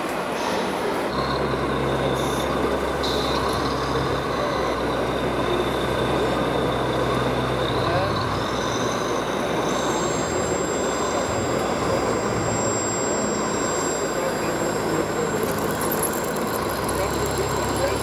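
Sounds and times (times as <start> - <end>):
electric motor whines: 1.1 - 18.0.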